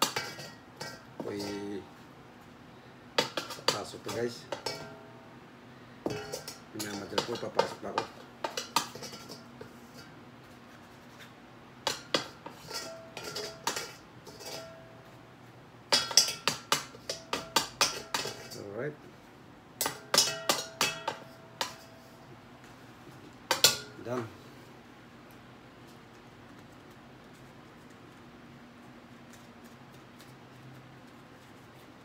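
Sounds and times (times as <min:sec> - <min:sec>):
steel bowl knocking and clinking: 0:04.5 - 0:05.1, 0:06.1 - 0:10.1, 0:15.9 - 0:18.6, 0:19.8 - 0:22.0.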